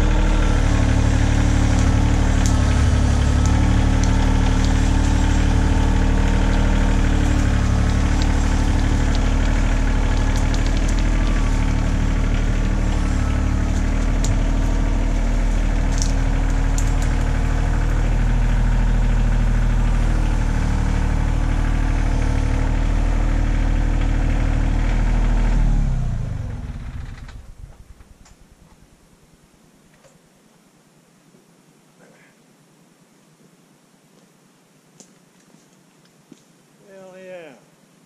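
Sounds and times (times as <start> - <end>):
tractor diesel engine running: 0.0 - 29.0.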